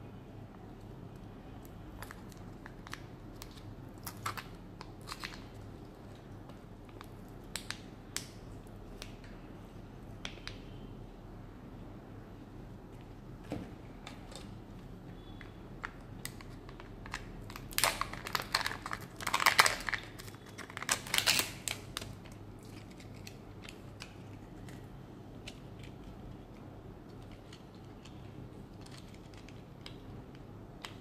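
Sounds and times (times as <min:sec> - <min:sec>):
wrapper crinkling: 0:16.2 - 0:24.9.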